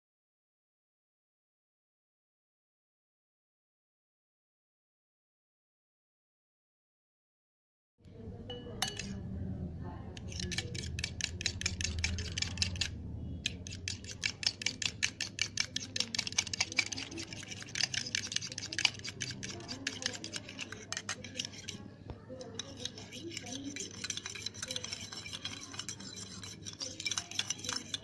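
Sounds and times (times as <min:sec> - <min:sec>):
whisk clicking against bowl: 0:08.5 - 0:09.2, 0:10.2 - 0:28.0.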